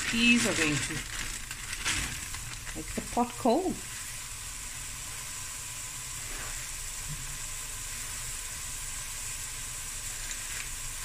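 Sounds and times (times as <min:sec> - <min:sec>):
vegetables sizzling in a pot: 0:00.0 - 0:11.0.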